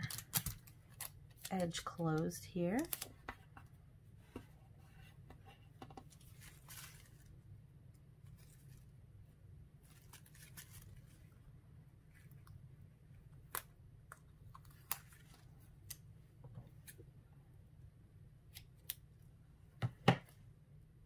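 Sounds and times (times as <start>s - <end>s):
paper and tape rustling: 0.0s - 3.4s, 6.1s - 7.3s, 9.8s - 11.3s
low steady hum: 0.0s - 21.0s.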